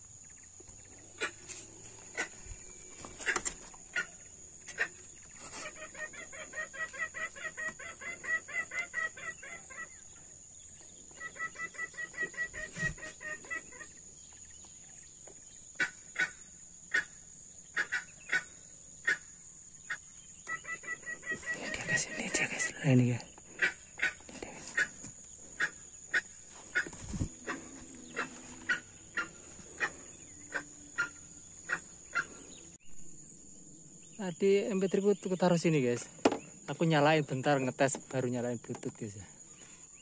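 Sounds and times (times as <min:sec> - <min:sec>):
junglefowl clucking from a speaker: 0:03.2 - 0:05.0, 0:11.2 - 0:13.9, 0:19.9 - 0:22.4, 0:23.6 - 0:24.2, 0:24.8 - 0:25.0, 0:25.6 - 0:32.3.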